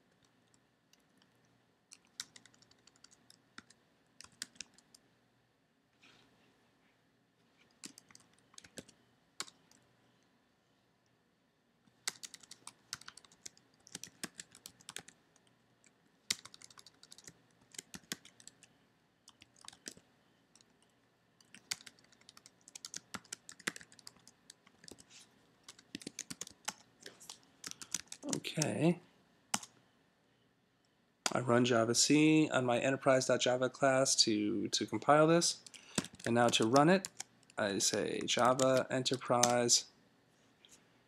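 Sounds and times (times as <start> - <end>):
keyboard typing: 0.2 - 5.0, 7.7 - 9.8, 12.0 - 18.7, 19.3 - 28.8, 29.5 - 29.7, 35.6 - 39.7.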